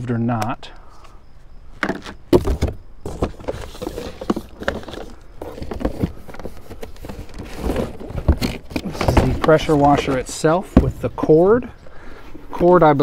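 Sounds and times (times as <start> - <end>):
plastic parts knocking: 1.8 - 10.1
cardboard box rustling: 1.8 - 11.3.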